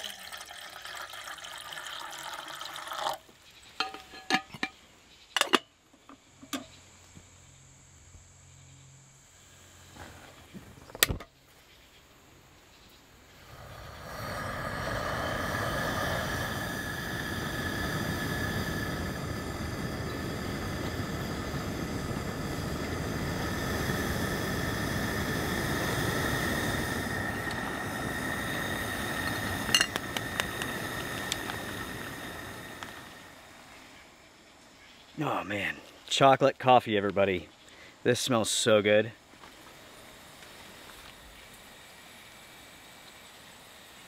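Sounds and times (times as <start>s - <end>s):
gas stove burner running: 13.4s - 33.7s.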